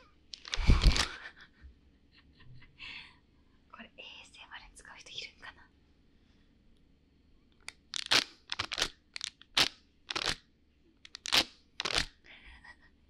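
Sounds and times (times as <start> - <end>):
paper party blowout crinkling: 0.4 - 1.2, 7.8 - 10.4, 11.1 - 12.1.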